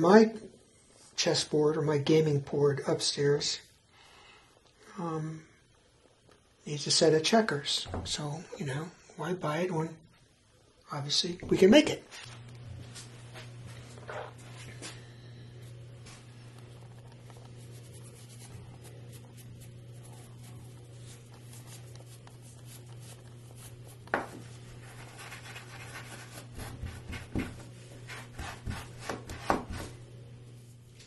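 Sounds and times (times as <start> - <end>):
low hum: 12.3 - 28.8
steel wool rubbing wood: 15.7 - 30.0.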